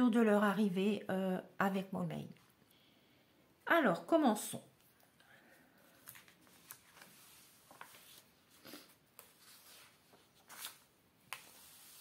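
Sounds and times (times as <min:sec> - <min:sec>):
catalogue pages turning: 0:05.8 - 0:12.0.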